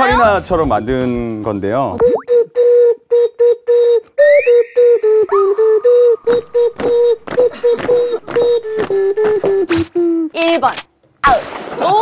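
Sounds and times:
bottle ocarina toots: 2.0 - 10.3
rising whistle-like glide: 4.2 - 7.2.

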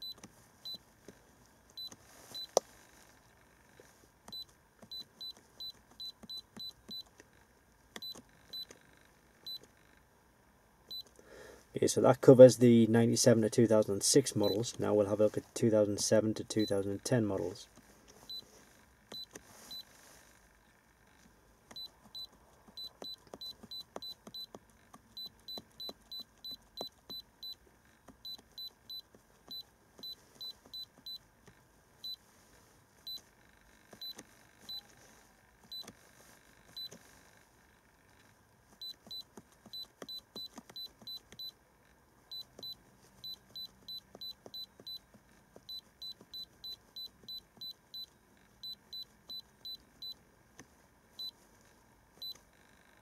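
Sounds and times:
short high-pitched beeps: 14.4 - 14.6, 21.8 - 24.5, 25.2 - 27.6, 38.8 - 41.6, 42.3 - 45.1, 45.7 - 50.2.

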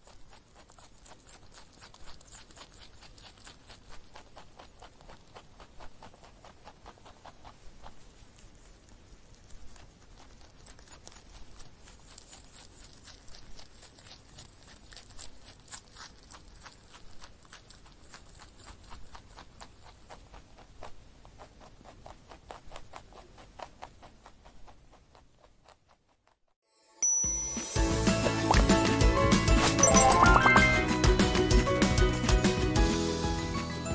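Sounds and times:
rabbit crunching: 0.0 - 26.4.

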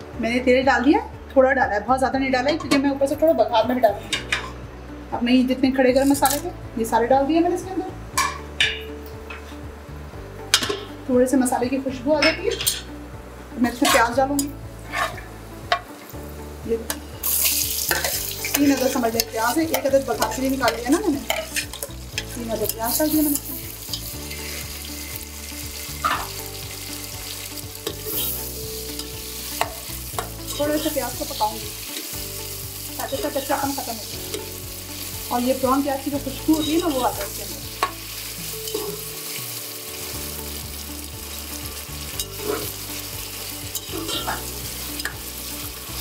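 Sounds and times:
onions sizzling in oil: 13.5 - 46.0
metal spoon scraping pot: 14.9 - 15.3, 42.2 - 42.8.

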